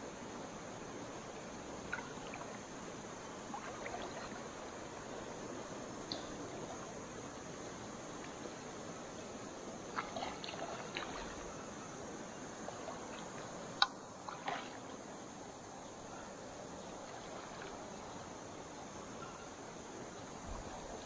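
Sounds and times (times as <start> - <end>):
water trickling and splashing: 0.0 - 21.0.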